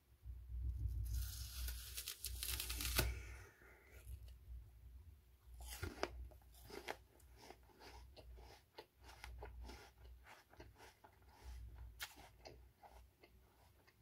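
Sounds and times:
chewing apple crunches: 5.6s - 14.0s.

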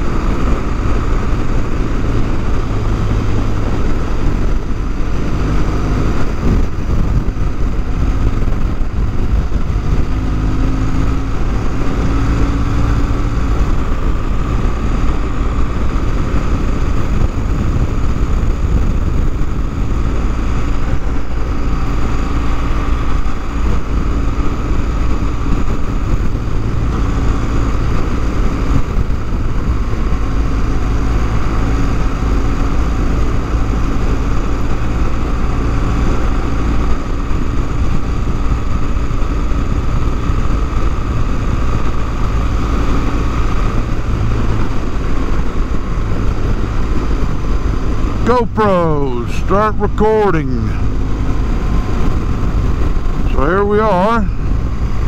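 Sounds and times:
motorcycle engine cruising: 0.0s - 55.0s
road and wind noise: 0.0s - 55.0s.

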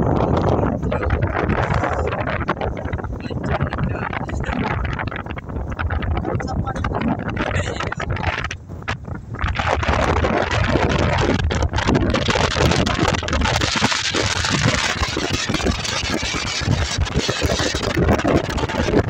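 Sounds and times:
wind buffeting microphone: 0.0s - 19.0s
truck road and engine noise: 6.9s - 19.0s.

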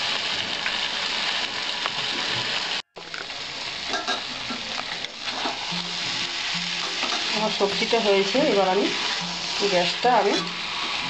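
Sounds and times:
vegetables sizzling in a pan: 0.0s - 11.0s
spatula scraping a pan: 3.9s - 5.7s, 6.8s - 11.0s.

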